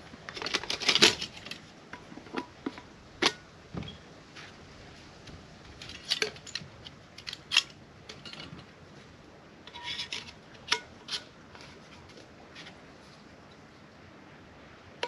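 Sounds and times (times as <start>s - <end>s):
items clicking and clinking: 0.0s - 3.9s, 5.7s - 8.7s.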